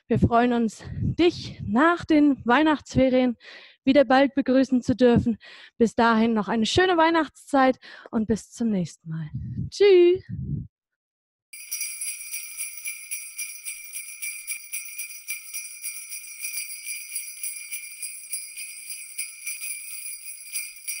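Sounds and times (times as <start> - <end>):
sleigh bells jingling: 11.6 - 21.0.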